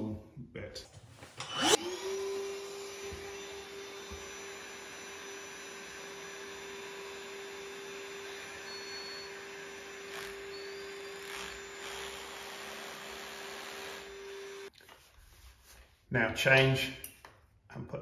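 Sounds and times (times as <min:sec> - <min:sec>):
hammer drill whirring: 0:01.4 - 0:14.7
vacuum dust extractor hum: 0:01.4 - 0:14.7.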